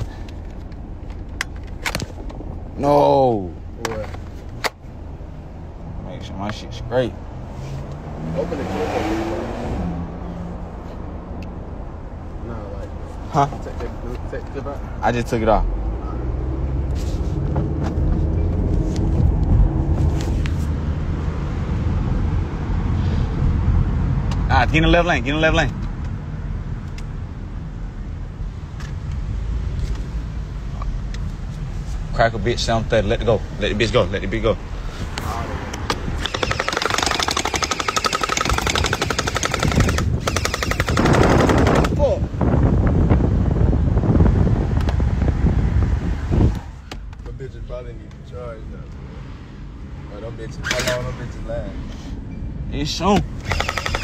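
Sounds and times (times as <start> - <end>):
car road and engine rumble: 0.0 - 54.0
gel ball blaster firing rapidly: 36.3 - 42.0, 53.4 - 54.0.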